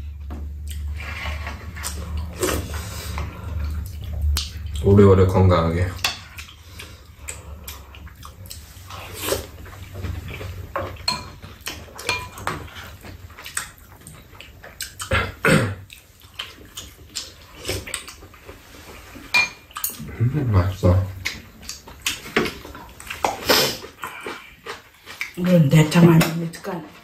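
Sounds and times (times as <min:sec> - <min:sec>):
eating sounds: 0:00.6 - 0:05.4, 0:06.2 - 0:25.5
utensils clinking on bowls: 0:10.8 - 0:12.8, 0:19.3 - 0:20.1.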